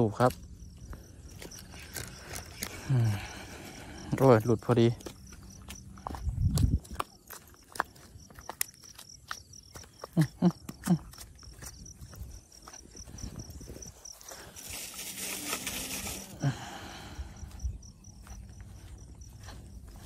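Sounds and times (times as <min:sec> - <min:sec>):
insect chirping: 0:00.0 - 0:20.0
gear rustling: 0:13.9 - 0:16.5.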